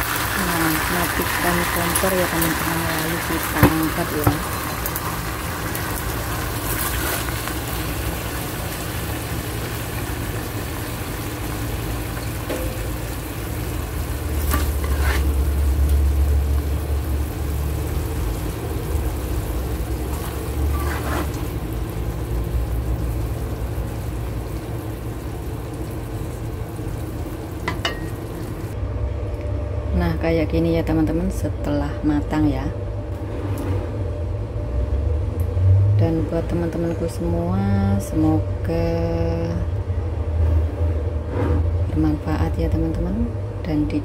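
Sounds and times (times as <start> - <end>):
fish sizzling in a wok: 0.0 - 28.8
low hum: 0.5 - 44.0
spatula scraping wok: 14.2 - 16.2, 20.0 - 21.6, 40.6 - 41.8.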